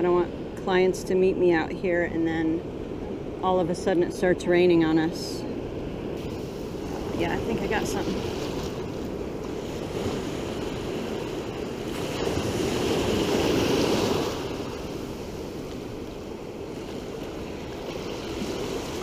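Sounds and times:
ocean surf washing: 0.0 - 19.0
wave breaking and rushing in: 6.1 - 19.0.

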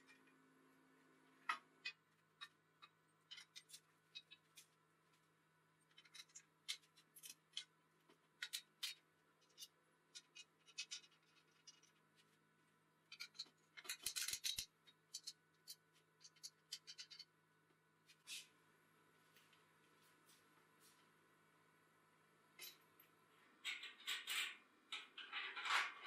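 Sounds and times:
metallic clicks and scrapes: 1.5 - 4.7, 5.9 - 7.7, 13.1 - 17.3.

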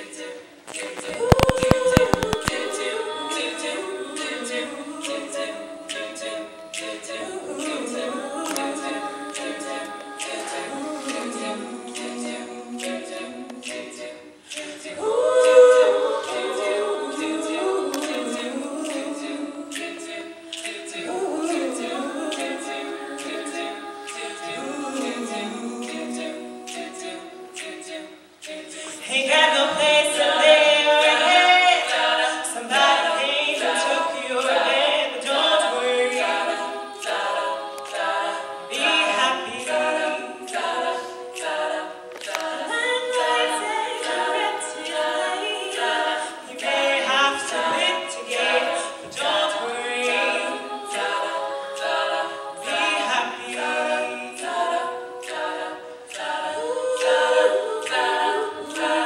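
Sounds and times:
beatboxed vocal percussion: 0.0 - 59.0
women singing a cappella: 0.0 - 59.0.

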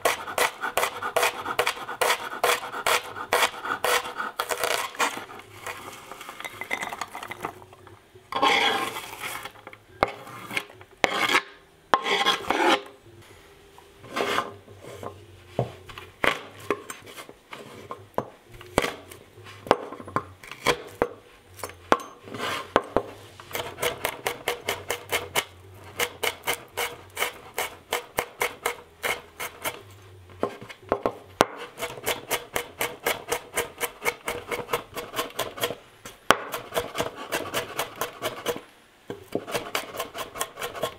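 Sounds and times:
knife scraping cutting board: 0.0 - 6.5, 8.3 - 13.0, 14.0 - 18.0, 22.2 - 30.8, 31.6 - 35.8, 36.5 - 38.6, 39.3 - 40.9.

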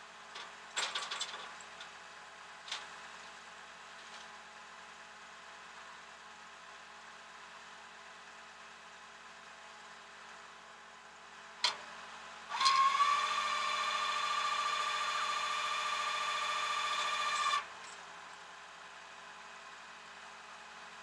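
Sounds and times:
hydraulics whining: 12.5 - 17.7.

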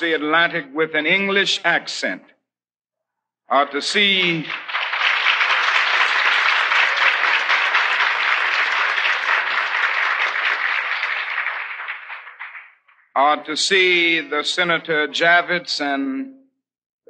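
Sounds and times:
large audience applauding: 3.9 - 13.1.

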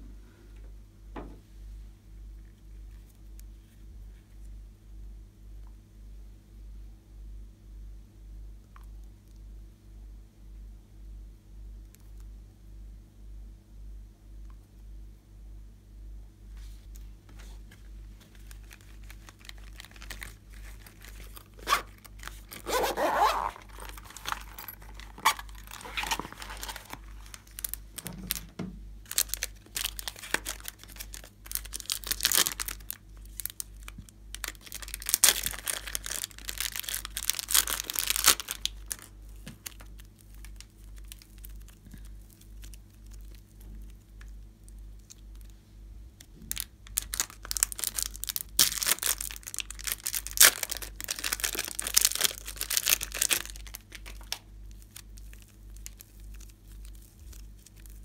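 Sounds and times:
slime crackling and popping: 29.0 - 44.4, 46.5 - 58.0.

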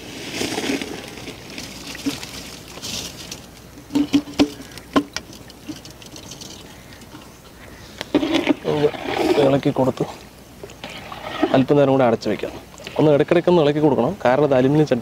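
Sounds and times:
rice pouring into boiling water: 0.0 - 3.2.

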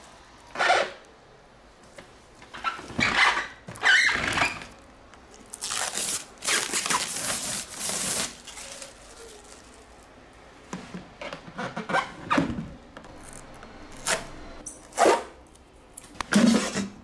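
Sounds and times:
plastic film squeaks: 2.6 - 4.8, 5.4 - 10.0
plastic film crinkling: 4.7 - 10.2.

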